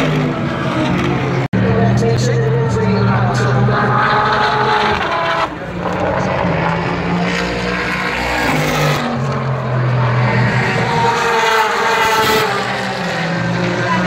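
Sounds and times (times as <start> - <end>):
race car engines shifting gear: 3.2 - 14.0.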